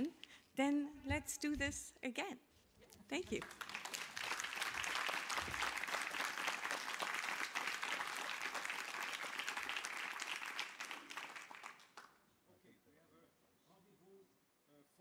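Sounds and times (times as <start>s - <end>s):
audience applauding: 3.3s - 12.2s.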